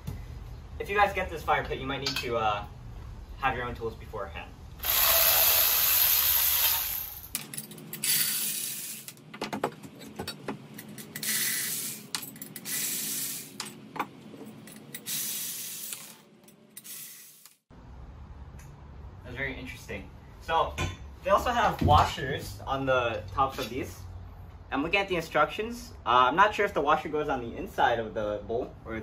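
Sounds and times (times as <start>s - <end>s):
power tool whirring: 4.8s - 7.3s
metallic clinks of nuts and bolts: 7.2s - 9.2s.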